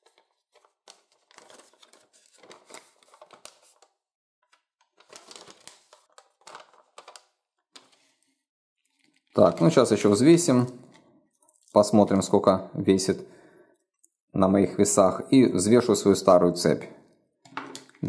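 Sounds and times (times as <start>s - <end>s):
paper rustling and crinkling: 0.0s - 10.1s.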